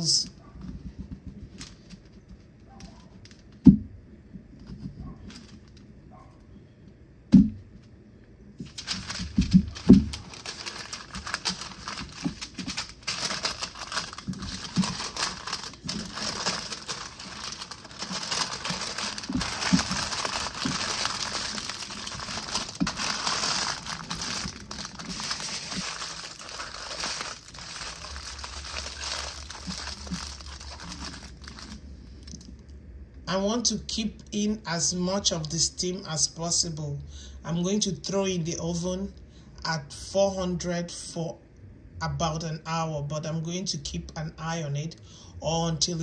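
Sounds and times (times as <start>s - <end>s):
paper and foil crinkling: 1.3s - 3.5s, 5.2s - 5.9s, 8.6s - 32.5s.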